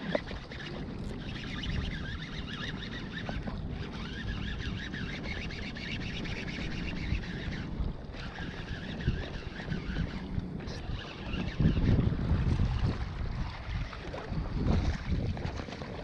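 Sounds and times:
wind buffeting microphone: 0.0s - 16.0s
high wavering chirps: 0.4s - 11.8s.

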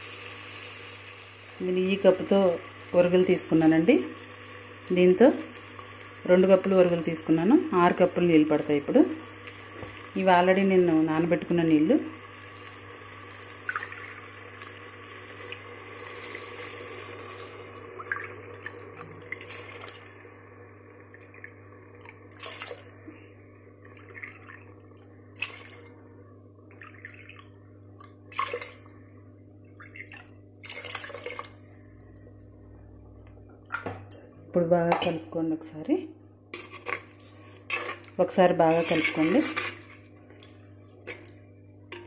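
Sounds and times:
water pouring into a clay pot: 21.4s - 22.9s, 29.8s - 31.6s.

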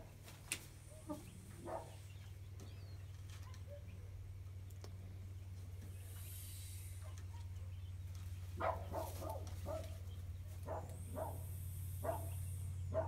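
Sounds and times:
steady low hum: 0.0s - 13.0s
faint hiss: 5.9s - 7.2s.

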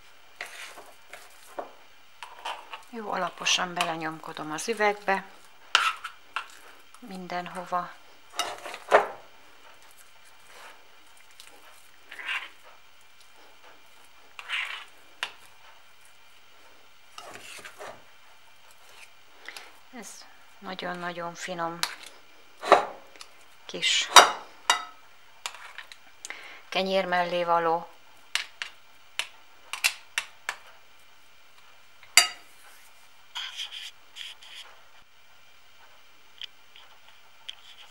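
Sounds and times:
knife scraping pate in jar: 17.2s - 18.0s.

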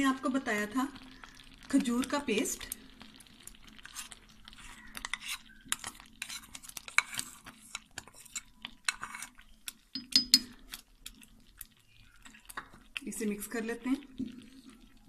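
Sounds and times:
utensil scraping a bowl: 3.8s - 9.4s.

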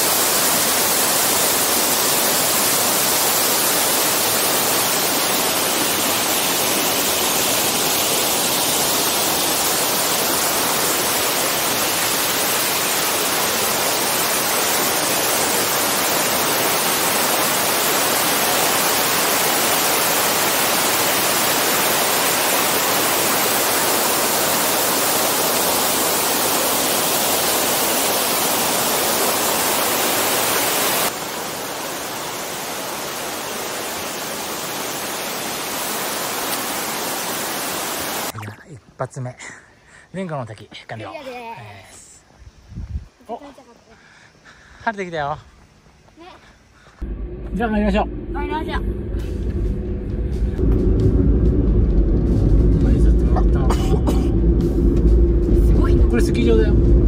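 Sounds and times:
stream rushing over rocks: 0.0s - 38.6s
waterfall: 0.0s - 38.7s.

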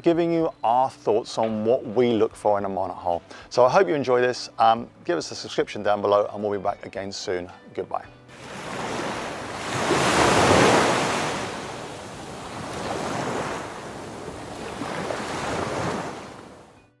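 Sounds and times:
ocean waves surging: 8.3s - 16.8s.

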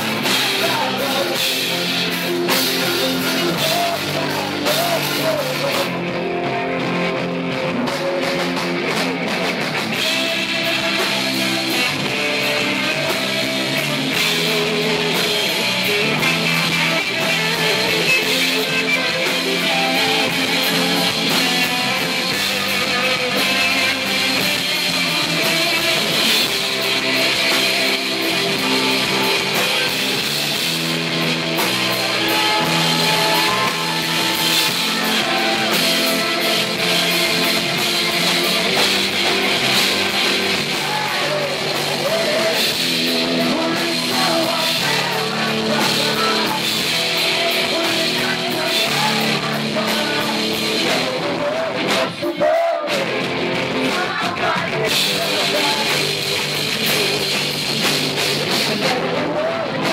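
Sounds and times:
drum kit: 0.0s - 59.9s
electric guitars: 0.0s - 59.9s.

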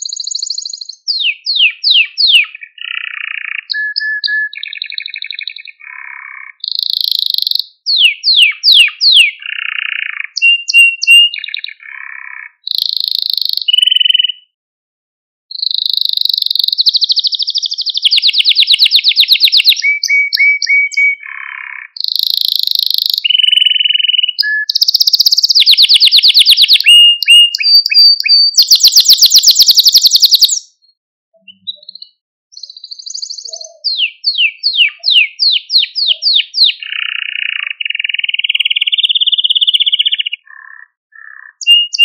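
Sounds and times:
canary singing trills: 0.0s - 14.6s, 15.5s - 42.0s.

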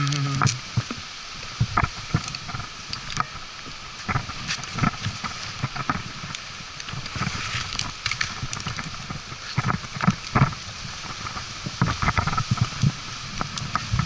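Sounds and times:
rope and gear knocking and scraping: 4.0s - 14.0s.

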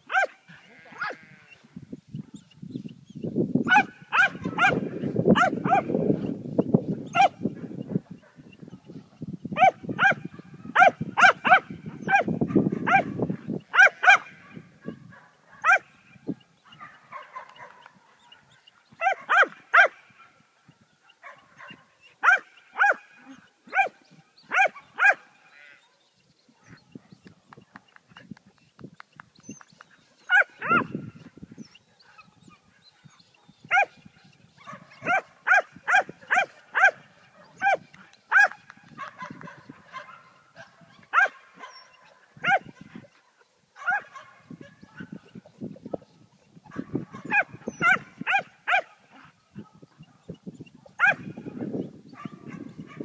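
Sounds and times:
dog barking: 0.1s - 0.4s, 3.7s - 6.0s, 7.2s - 7.4s, 9.6s - 15.9s, 16.7s - 20.4s, 21.1s - 25.3s, 30.3s - 30.9s, 32.9s - 34.0s, 34.6s - 43.2s, 43.8s - 45.2s, 46.7s - 51.4s, 52.2s - 53.0s.

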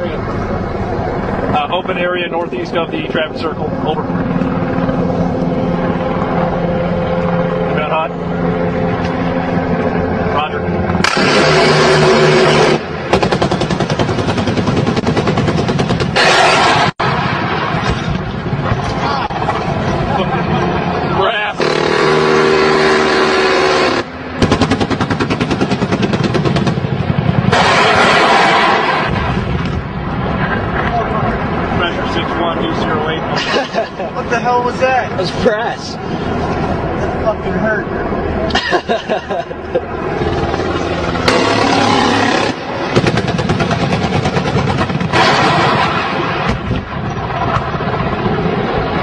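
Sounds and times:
engine drone: 0.0s - 49.0s
loud rumbling noise: 0.0s - 49.0s
loud steady rushing noise: 0.0s - 49.0s
sharp blasts: 10.4s - 19.5s, 21.3s - 30.1s, 40.1s - 49.0s
rapid automatic gunfire: 11.0s - 16.9s, 23.7s - 29.0s, 41.3s - 46.4s.

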